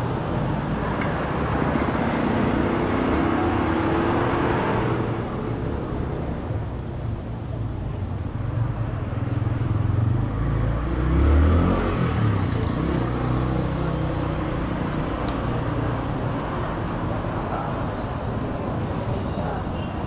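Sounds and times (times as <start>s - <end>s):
street traffic hum: 0.0s - 20.0s
vehicle engine passing by: 9.5s - 14.9s.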